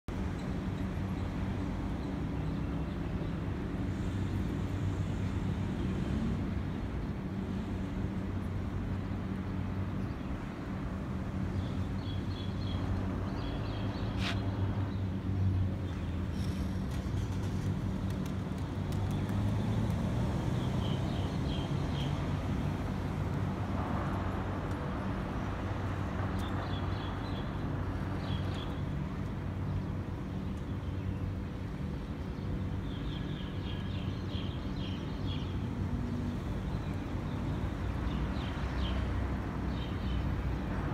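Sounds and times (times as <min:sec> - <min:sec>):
small birds chirping: 0:08.8 - 0:23.2, 0:26.2 - 0:40.6.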